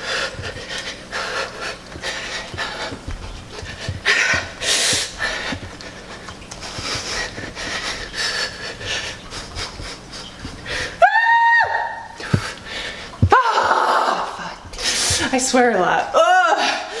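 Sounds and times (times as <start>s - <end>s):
woman panting hard: 0.0s - 11.0s, 16.5s - 17.0s
woman's strained cry: 11.0s - 12.1s, 13.3s - 14.5s, 16.2s - 17.0s.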